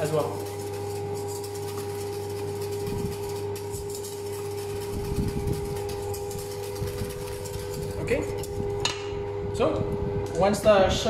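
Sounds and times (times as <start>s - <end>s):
whisk stirring in metal bowl: 0.0s - 8.8s
electrical hum: 0.0s - 11.0s.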